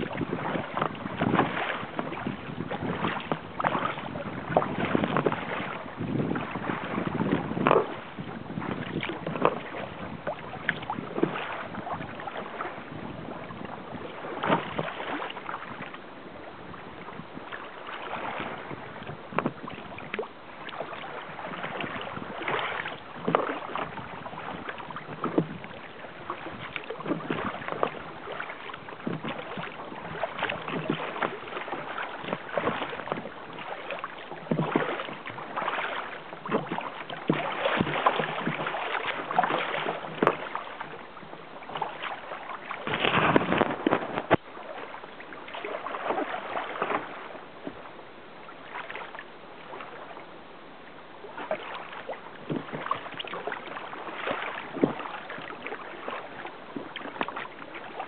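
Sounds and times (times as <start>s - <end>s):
water slapping against kayak hull: 0.0s - 50.3s, 51.2s - 58.0s.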